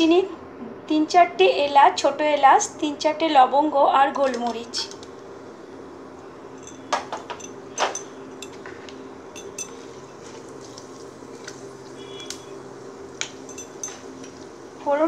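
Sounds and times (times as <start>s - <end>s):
low steady hum: 0.0s - 15.0s
spices frying in oil: 4.2s - 15.0s.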